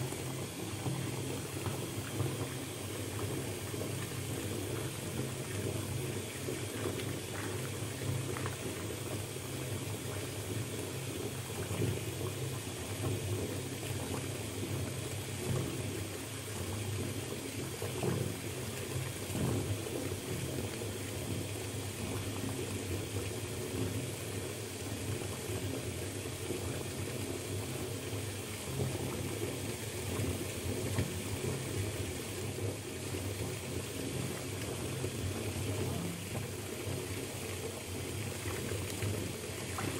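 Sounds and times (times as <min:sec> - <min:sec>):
water splashes: 0:00.0 - 0:14.8, 0:28.8 - 0:39.9
tap water rushing into bathtub: 0:00.0 - 0:39.9.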